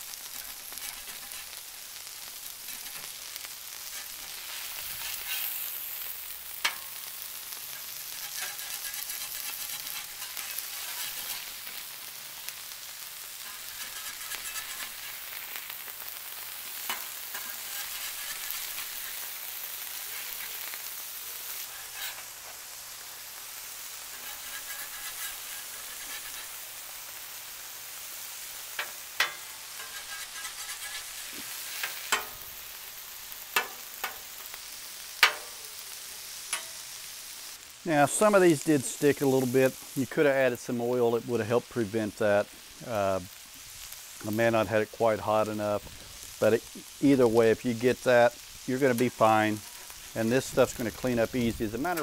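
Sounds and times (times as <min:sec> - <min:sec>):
burger patties sizzling on griddle: 0:00.0 - 0:52.0
metal spatula scraping steel: 0:00.3 - 0:11.9, 0:13.3 - 0:22.6, 0:23.9 - 0:26.8, 0:28.7 - 0:32.5.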